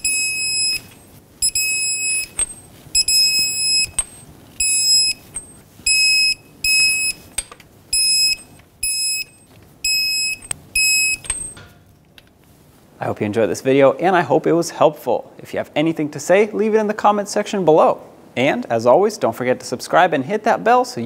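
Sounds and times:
short high-pitched beeps: 0.0 - 7.3, 7.9 - 11.6.

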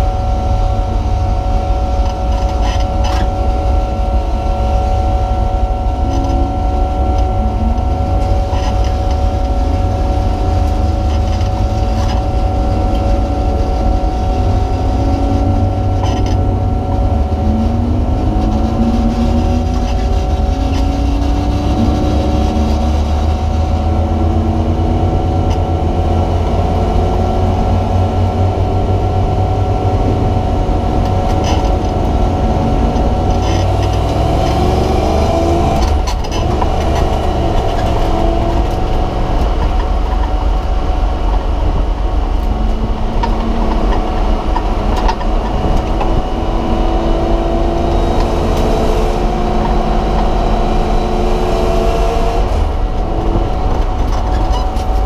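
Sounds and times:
race car engine revving: 0.0 - 55.0
road and wind noise: 0.0 - 55.0.

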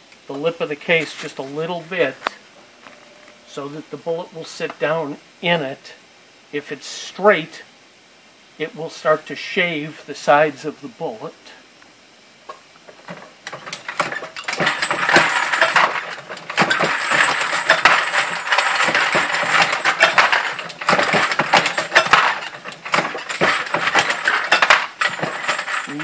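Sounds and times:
metallic clinking of reloading press: 13.4 - 26.0.

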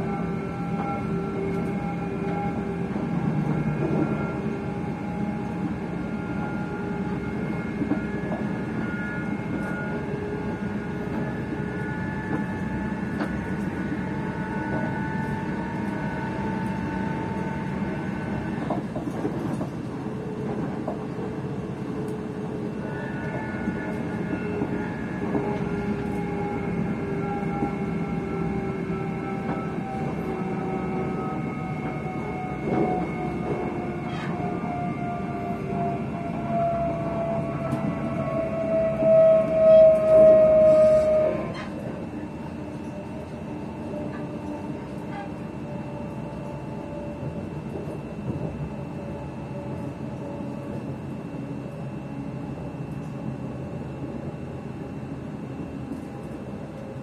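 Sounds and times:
electric train motors whining: 22.1 - 50.8.

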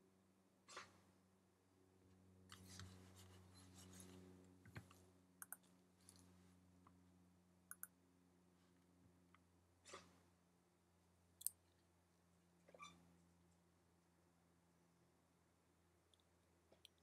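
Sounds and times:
faint electrical hum: 0.0 - 17.0
faint clicks: 7.7 - 7.9.

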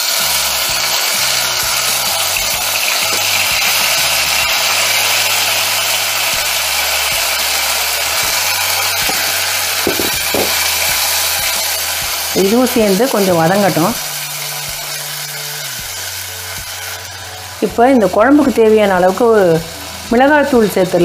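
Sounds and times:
tomatoes sizzling in hot oil: 0.0 - 21.0
wooden spatula stirring: 9.0 - 10.9.

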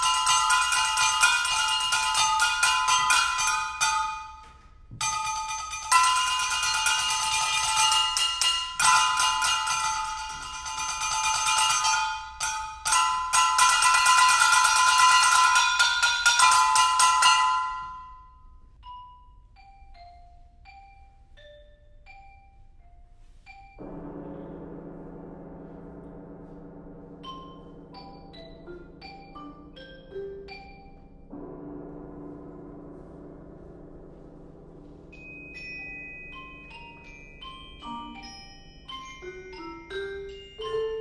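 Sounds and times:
bright metallic ringing strikes: 0.0 - 18.3, 23.7 - 41.0
xylophone notes: 18.8 - 23.8, 27.2 - 31.3, 35.1 - 41.0
vibraphone chord: 26.0 - 31.6, 34.0 - 41.0.

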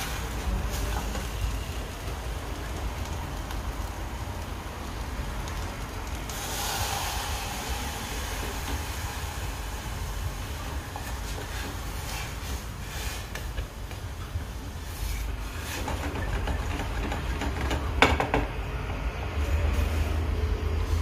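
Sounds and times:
food sizzling in a pan: 0.0 - 5.5, 6.2 - 13.8.

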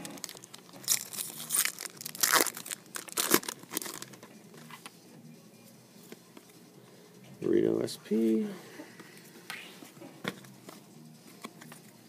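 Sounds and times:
wrappers crinkling and tearing: 0.0 - 4.2.

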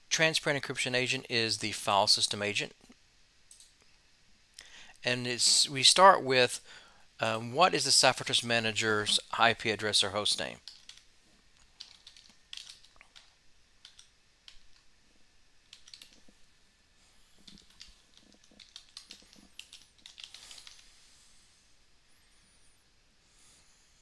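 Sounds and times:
faint keystrokes on a keyboard: 10.6 - 14.9, 15.7 - 16.4, 17.4 - 20.9.

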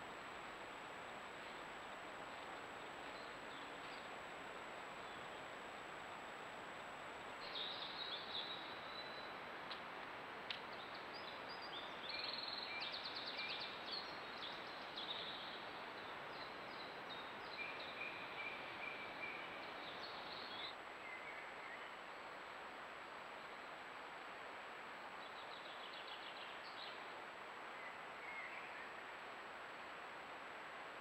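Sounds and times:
steady hiss: 0.0 - 31.0
songbirds chirping and trilling: 7.4 - 9.4, 10.5 - 22.0.

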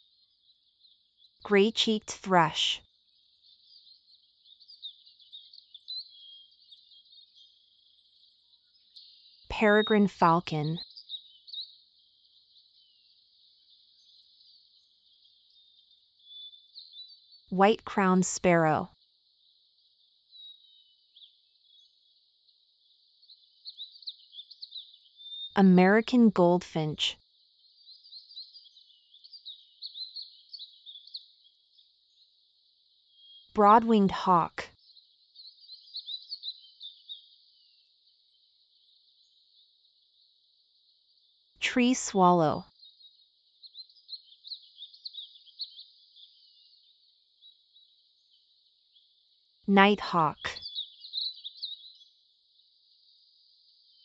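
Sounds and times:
small birds chirping: 0.0 - 26.3, 27.3 - 54.0
small songbird twittering: 34.8 - 37.8, 50.6 - 52.1.

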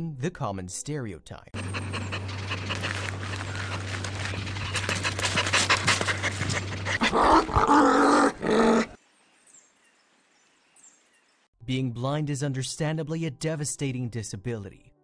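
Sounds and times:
steady low hum: 1.6 - 7.2
dog panting: 1.6 - 7.6
dog vocalising: 1.6 - 9.0.

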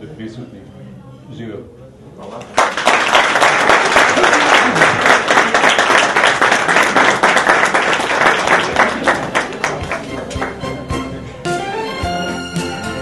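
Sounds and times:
crowd applauding: 2.5 - 11.1.

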